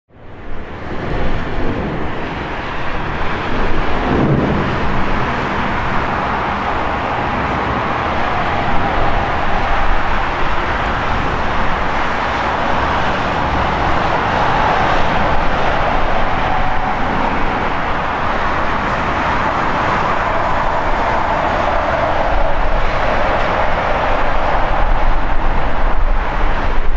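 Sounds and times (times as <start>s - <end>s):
faint jet whine: 0.2s - 26.9s
loud jet engine rush: 0.4s - 26.9s.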